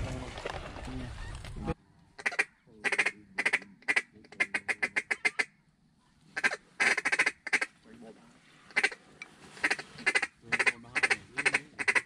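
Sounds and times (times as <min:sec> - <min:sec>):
duck call quacks: 0:02.2 - 0:05.5, 0:06.4 - 0:07.7, 0:08.7 - 0:09.0, 0:09.6 - 0:12.0.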